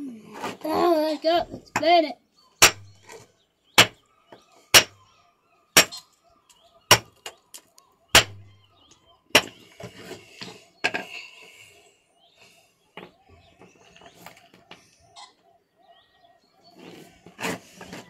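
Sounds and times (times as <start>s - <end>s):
hammer cracking stone: 2.6s - 3.0s, 3.8s - 4.0s, 4.7s - 5.0s, 5.8s - 6.0s, 6.9s - 7.2s, 8.1s - 8.4s, 9.4s - 9.6s.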